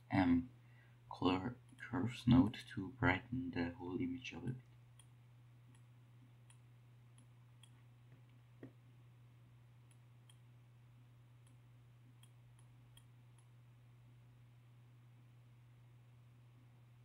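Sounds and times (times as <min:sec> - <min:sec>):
low hum: 0:00.0 - 0:17.0
computer mouse clicks: 0:05.7 - 0:08.4.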